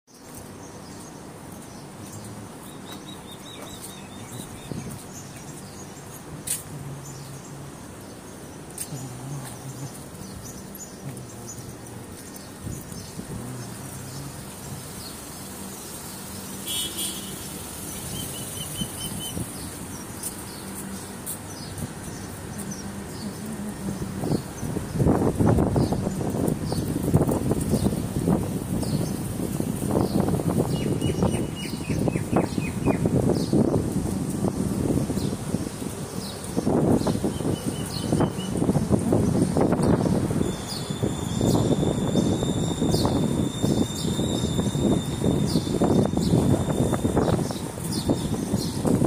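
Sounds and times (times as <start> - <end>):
traffic hum: 0.1 - 49.0
bird chirps: 16.6 - 20.8.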